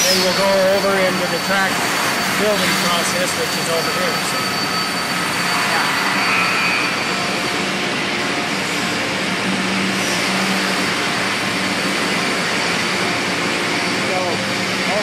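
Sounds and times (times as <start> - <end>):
faint steady whines: 0.0 - 15.0
machinery hiss and hum: 0.0 - 15.0.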